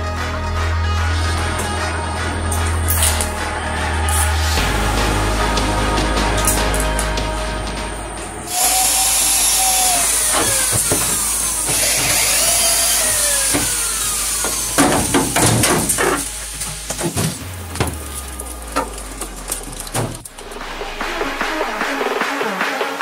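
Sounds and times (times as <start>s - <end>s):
power tool running: 8.5s - 22.2s
sharp knocks and clatter: 13.5s - 21.1s.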